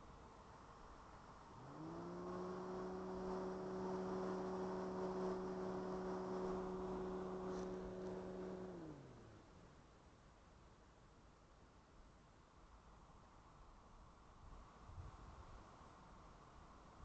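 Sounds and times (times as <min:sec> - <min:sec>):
motor humming: 0:01.5 - 0:09.7.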